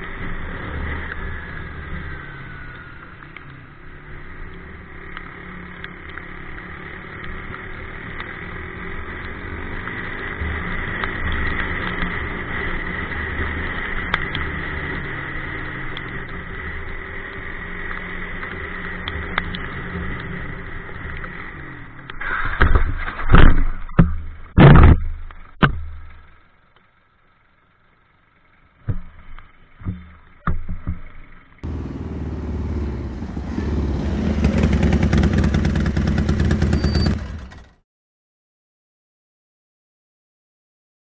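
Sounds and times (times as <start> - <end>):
motorcycle engine running: 0.0 - 22.2, 27.5 - 37.8
wind and road noise: 0.0 - 37.8.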